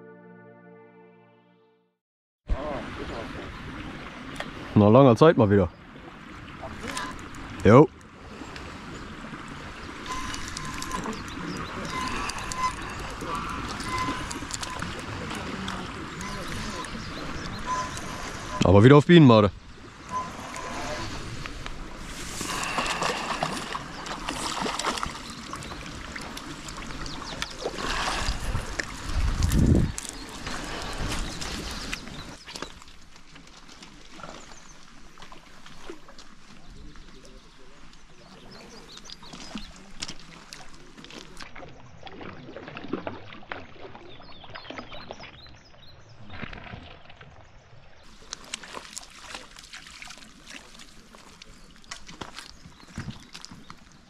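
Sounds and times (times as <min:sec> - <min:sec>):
water sloshing: 0:02.6 - 0:45.4, 0:46.2 - 0:54.0
water sloshing in net: 0:19.9 - 0:37.1, 0:48.1 - 0:54.0
fish splashing at surface: 0:20.1 - 0:34.6, 0:48.1 - 0:54.0.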